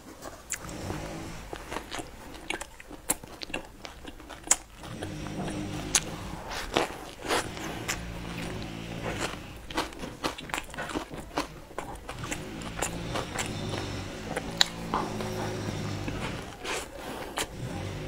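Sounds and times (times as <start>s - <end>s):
biting and chewing sandwich: 0.0s - 18.0s
mouth clicks and smacks: 1.5s - 8.6s.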